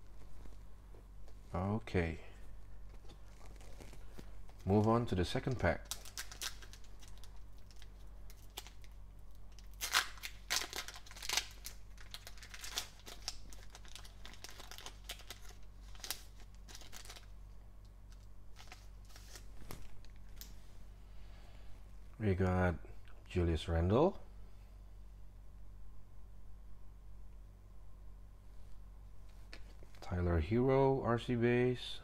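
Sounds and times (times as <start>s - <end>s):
foil wrapper tearing and crinkling: 4.7s - 17.3s, 18.1s - 20.5s.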